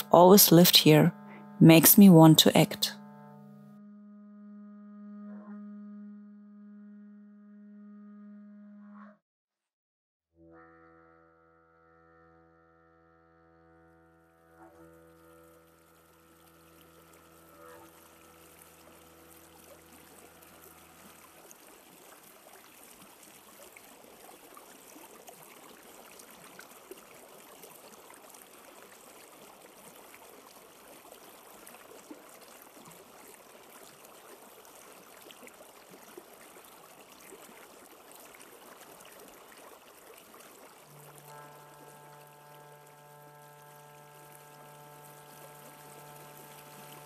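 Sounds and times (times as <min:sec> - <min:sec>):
faint running water: 0:00.0 - 0:03.6, 0:14.2 - 0:47.0
low musical drone: 0:00.0 - 0:08.6, 0:10.8 - 0:21.6, 0:40.9 - 0:47.0
water drips and ticks: 0:14.6 - 0:47.0.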